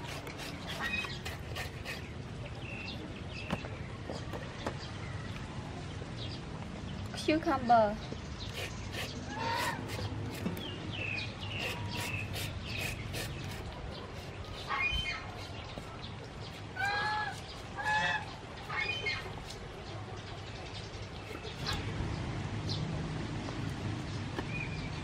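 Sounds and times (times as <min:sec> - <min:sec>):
fowl calling: 0:16.8 - 0:19.2.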